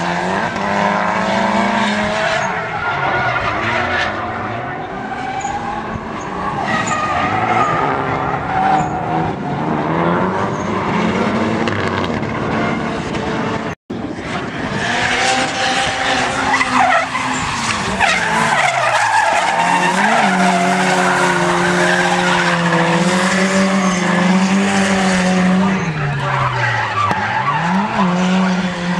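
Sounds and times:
car engines revving: 0:00.0 - 0:28.9.

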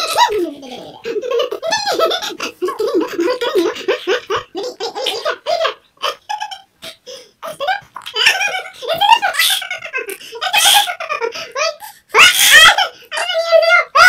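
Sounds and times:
baby laughing and giggling: 0:00.0 - 0:06.7.

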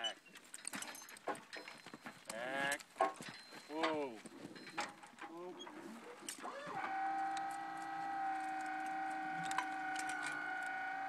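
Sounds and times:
motor whine: 0:06.4 - 0:11.0.

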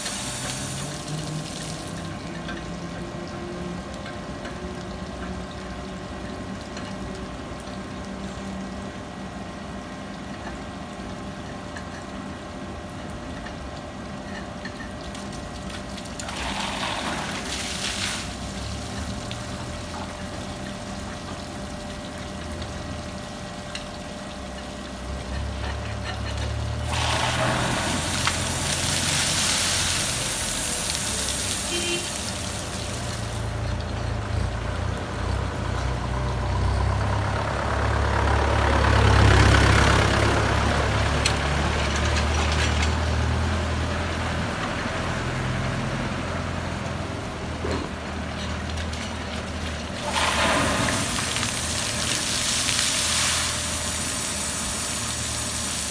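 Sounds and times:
water jet hissing through radiator: 0:00.0 - 0:02.2, 0:16.2 - 0:20.1, 0:26.6 - 0:33.9, 0:50.0 - 0:55.9.

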